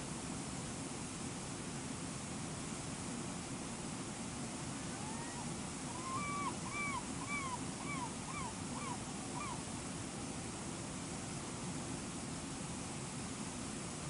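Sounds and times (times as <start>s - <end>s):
gull yelping calls: 5.0s - 9.6s.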